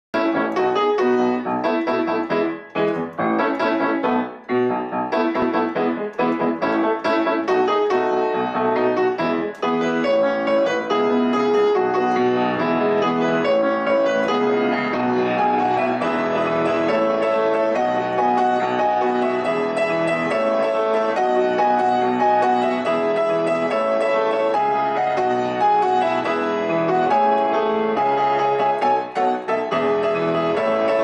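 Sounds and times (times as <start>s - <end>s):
piano music: 0.1s - 31.0s.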